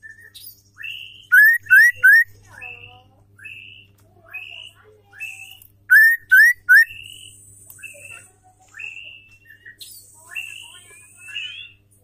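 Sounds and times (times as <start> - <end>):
bird whistled calls: 0.0 - 2.3, 5.2 - 8.1.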